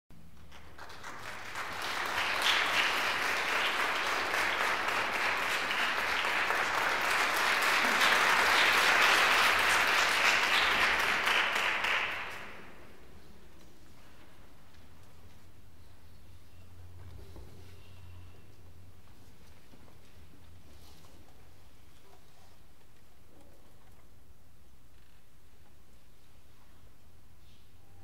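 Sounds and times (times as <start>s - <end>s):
audience applauding: 0.4s - 12.9s.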